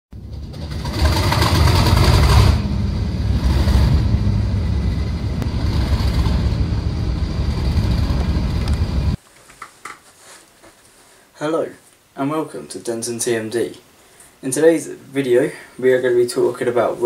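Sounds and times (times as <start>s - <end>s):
diesel locomotive engine rumble: 0.2s - 9.2s.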